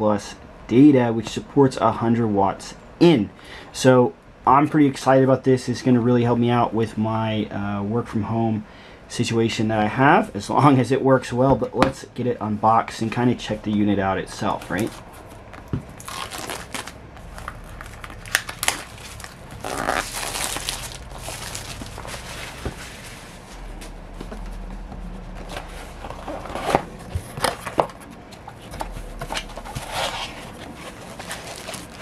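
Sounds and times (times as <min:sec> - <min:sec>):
plastic shrink wrap crinkling: 0:16.0 - 0:23.5, 0:29.4 - 0:32.0
box being opened: 0:25.3 - 0:32.0.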